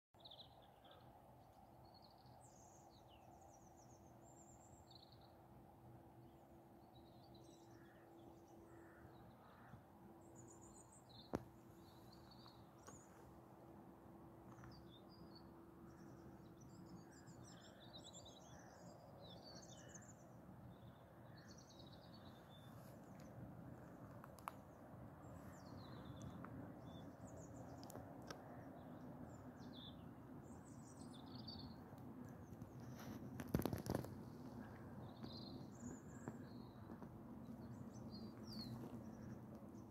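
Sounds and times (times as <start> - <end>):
small birds chirping: 14.4 - 39.9.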